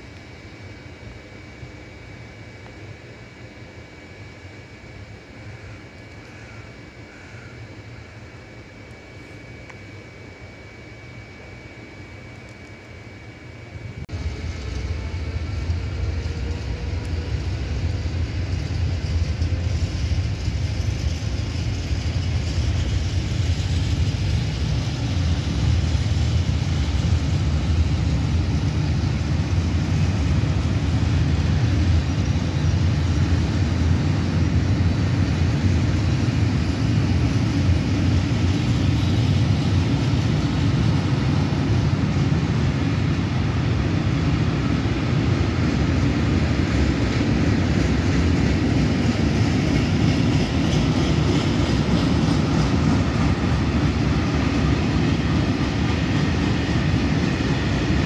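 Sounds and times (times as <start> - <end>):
train wheels rumbling on rail: 13.9 - 58.0.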